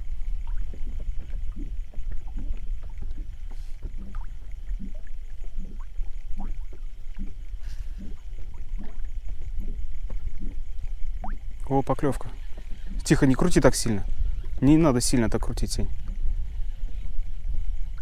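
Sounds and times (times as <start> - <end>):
steady low rumble: 0.0 - 18.0
waves lapping against boat hull: 0.0 - 18.0.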